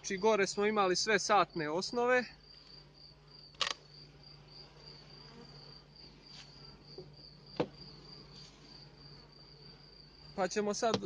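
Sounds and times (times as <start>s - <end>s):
cricket chirping: 0.0s - 11.0s
faint hum of bees: 0.0s - 11.0s
knock on wooden box: 7.0s - 7.8s.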